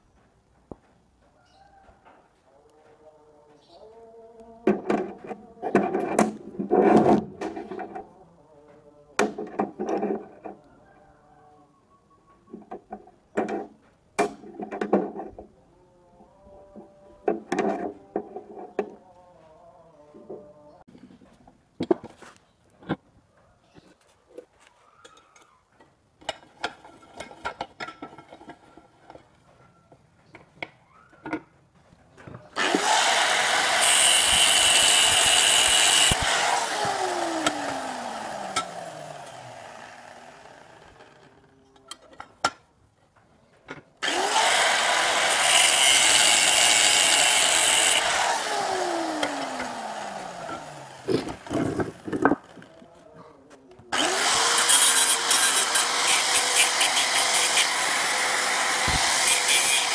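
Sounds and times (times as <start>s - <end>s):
angle grinder grinding metal: 32.6s - 41.5s, 44.0s - 52.8s, 53.9s - 59.9s.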